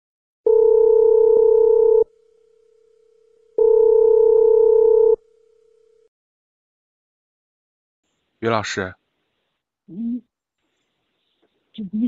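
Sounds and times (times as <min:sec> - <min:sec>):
telephone ringback tone: 0:00.5 - 0:06.1.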